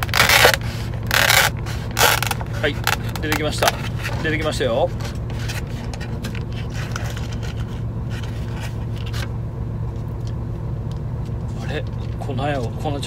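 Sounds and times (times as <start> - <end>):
paper and plastic packets crinkling: 0.0 - 4.1
truck engine idling: 0.0 - 13.0.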